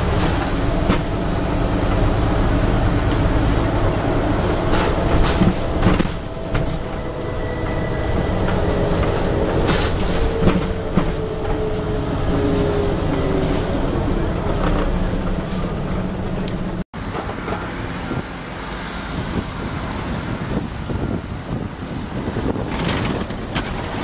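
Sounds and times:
knocks and rattles from bus body: 0.0 - 12.0, 22.2 - 24.0
bus diesel engine running: 0.0 - 24.0.

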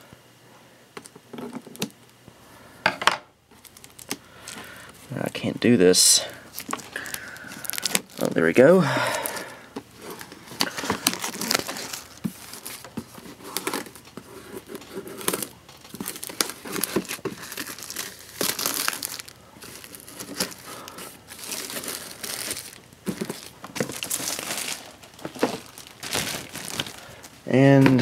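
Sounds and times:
plastic shrink-wrap crinkling: 3.5 - 28.0.

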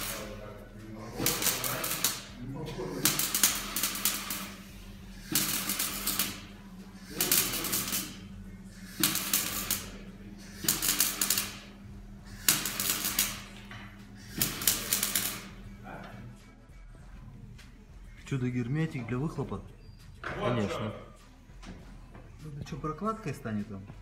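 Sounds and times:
arc welding crackling: 0.0 - 16.0
steady low hum: 0.0 - 24.0.

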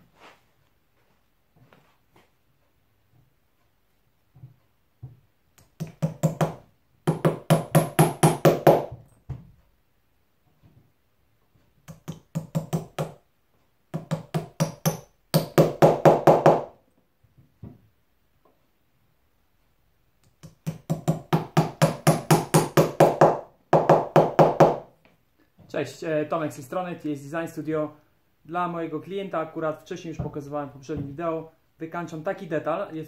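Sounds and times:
hammer tapping upholstery nails: 5.6 - 9.0, 11.8 - 13.2, 13.9 - 16.7, 20.2 - 24.9.

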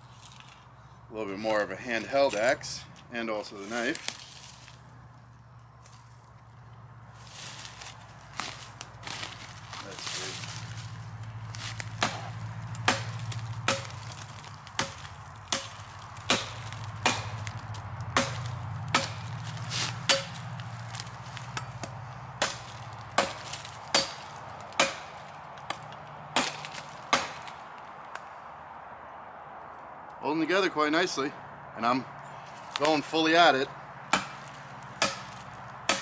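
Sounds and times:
axe chopping wood: 11.6 - 27.7, 34.1 - 36.0.

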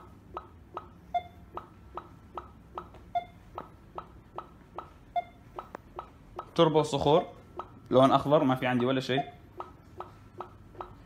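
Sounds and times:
ground scanner electronic ticks: 0.0 - 11.0
short beeps: 1.0 - 1.4, 3.1 - 3.4, 5.1 - 5.5, 9.1 - 9.4.

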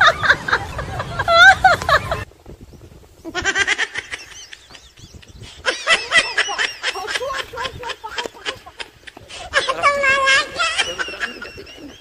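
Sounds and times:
high-pitched giggling: 3.3 - 12.0.

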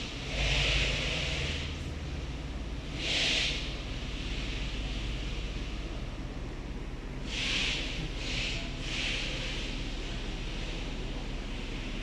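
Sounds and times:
short hisses: 3.0 - 3.8, 7.3 - 9.6.

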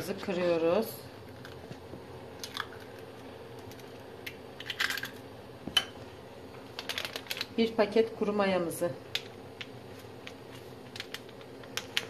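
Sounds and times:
eggshell cracking: 2.4 - 5.2.

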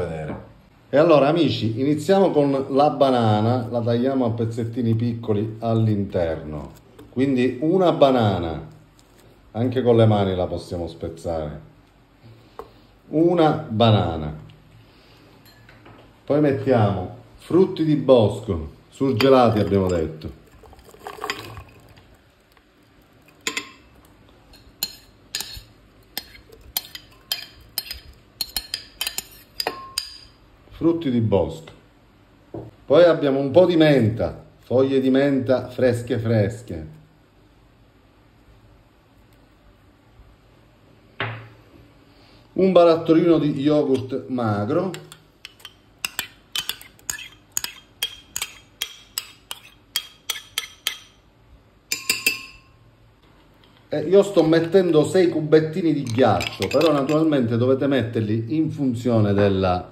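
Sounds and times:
spoon clinking on bowl: 51.9 - 52.8, 56.0 - 57.3.

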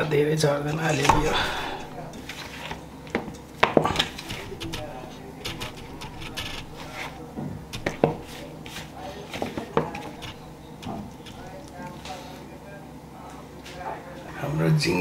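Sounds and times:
hands rubbing and patting flour: 3.8 - 12.5.

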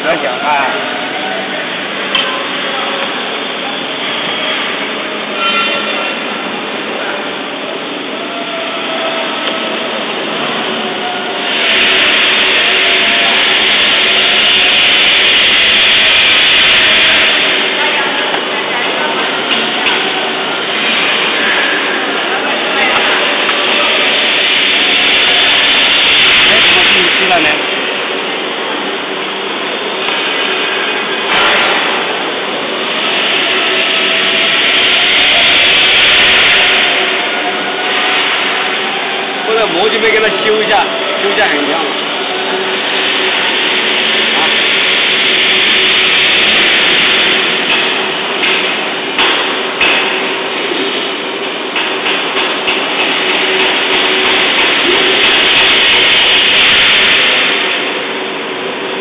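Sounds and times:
swaging machine humming: 0.0 - 59.0
hiss: 11.2 - 17.8, 23.4 - 27.6, 32.9 - 39.2, 42.7 - 50.2, 52.9 - 58.0.

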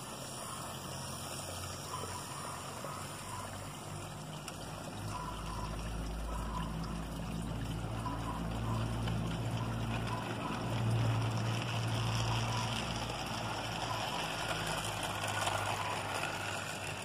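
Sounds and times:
low motor hum: 0.0 - 17.0
model train wheels rolling: 8.0 - 17.0.

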